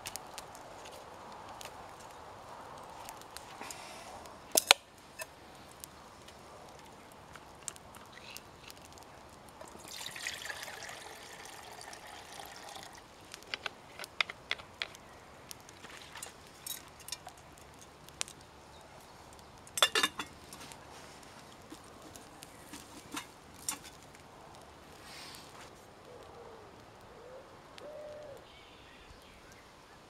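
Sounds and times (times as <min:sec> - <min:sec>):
water pouring into metal mug: 0:09.6 - 0:13.1.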